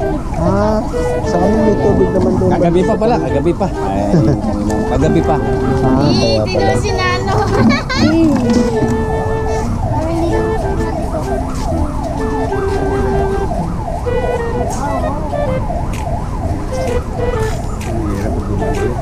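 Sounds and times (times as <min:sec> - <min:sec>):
emergency siren yelping: 0:00.0 - 0:19.0
street noise: 0:00.0 - 0:19.0.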